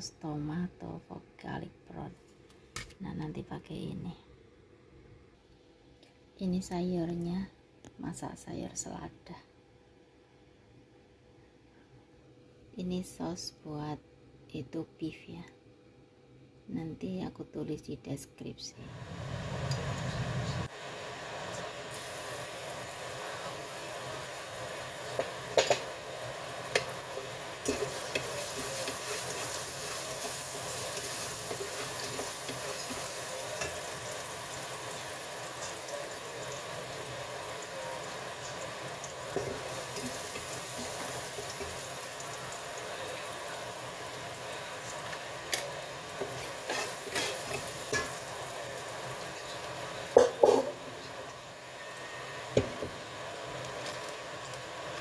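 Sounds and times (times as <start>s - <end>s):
food sizzling in wok: 18.9s - 55.0s.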